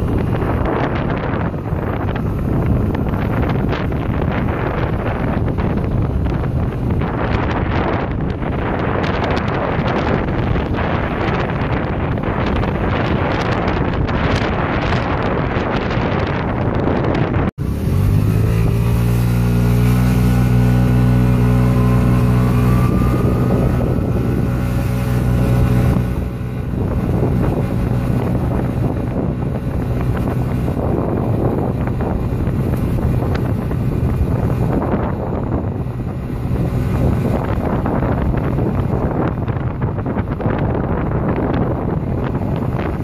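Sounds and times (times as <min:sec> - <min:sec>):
scooter engine accelerating: 0:00.0 - 0:16.4, 0:17.6 - 0:43.0
wind buffeting microphone: 0:00.0 - 0:43.0.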